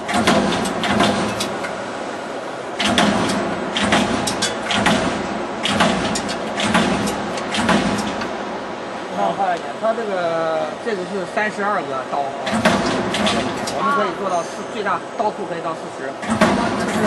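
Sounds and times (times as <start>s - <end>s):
punch press metallic strikes: 0.0s - 1.6s, 2.8s - 8.4s, 12.4s - 13.8s, 16.2s - 17.0s
steady machine hum: 0.0s - 17.0s.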